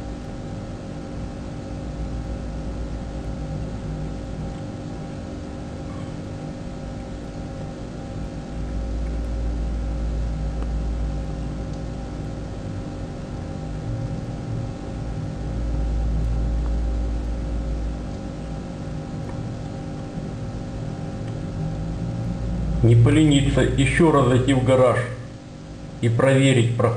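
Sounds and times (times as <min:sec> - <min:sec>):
mechanical hum: 0:00.0 - 0:26.9
deep low rumble: 0:20.8 - 0:24.6.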